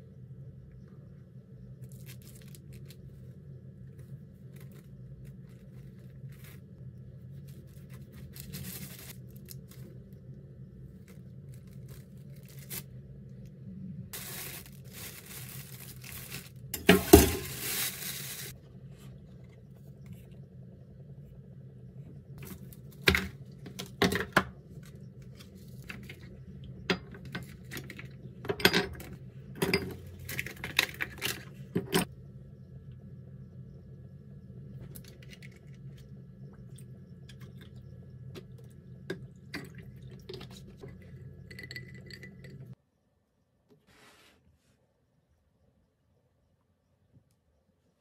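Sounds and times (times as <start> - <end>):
low steady hum: 0.0 - 48.0
ice and glass mug clinking: 40.9 - 42.7.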